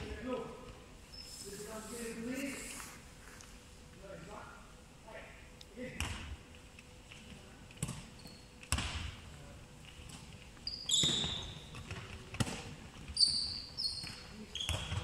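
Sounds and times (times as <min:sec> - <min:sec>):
ball thudding in a hall: 0:05.9 - 0:06.5, 0:07.7 - 0:15.0
sneakers squeaking on floor: 0:07.9 - 0:08.8, 0:10.6 - 0:12.1, 0:13.0 - 0:15.0.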